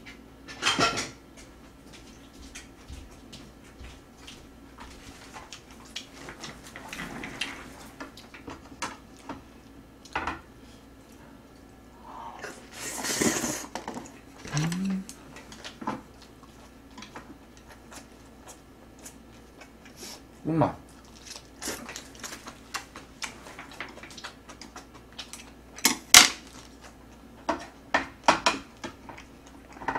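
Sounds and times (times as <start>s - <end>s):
person humming: 14.4s - 15.2s.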